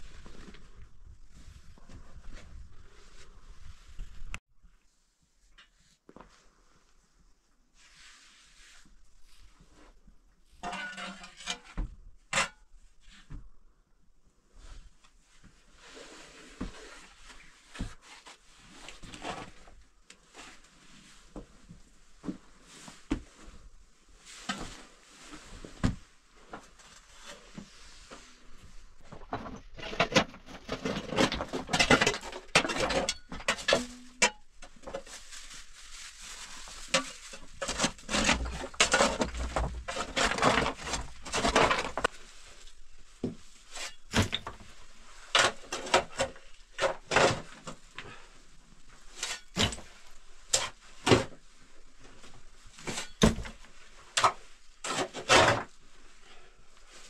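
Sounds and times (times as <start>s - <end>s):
soil and stones rattling: 36.5s - 42.2s.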